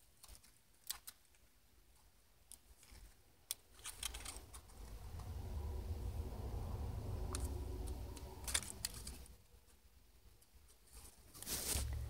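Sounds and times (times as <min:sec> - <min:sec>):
scissors snipping paper: 0:00.0 - 0:01.5
low rumble: 0:04.2 - 0:09.5.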